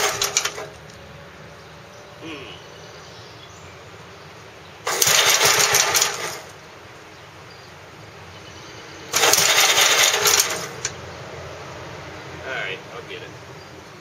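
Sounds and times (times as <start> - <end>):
engine cranking by electric starter: 0.0 - 0.8, 4.8 - 6.6, 9.1 - 11.0.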